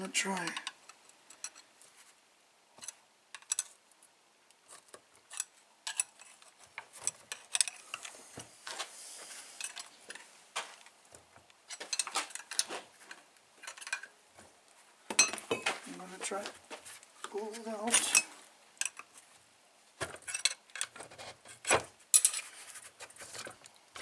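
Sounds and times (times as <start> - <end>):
hand tools clinking on metal: 11.7 - 12.8, 15.1 - 15.8, 17.8 - 19.0.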